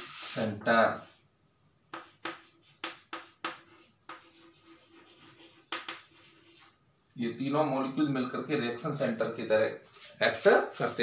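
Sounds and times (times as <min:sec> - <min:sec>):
chalk scratching on chalkboard: 0:00.0 - 0:01.2, 0:01.9 - 0:06.8, 0:09.9 - 0:11.0.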